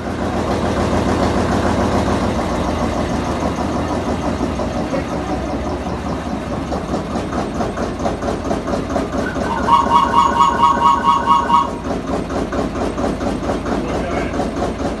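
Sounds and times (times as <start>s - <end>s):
locomotive engine idling: 0.0s - 15.0s
pulsing high exhaust whistle: 9.2s - 12.0s.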